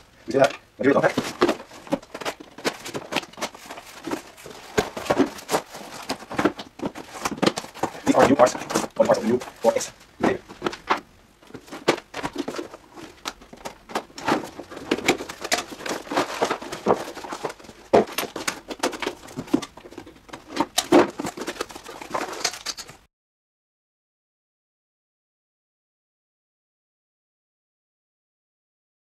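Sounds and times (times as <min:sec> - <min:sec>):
packaging rustling and scraping: 0:00.3 - 0:23.1.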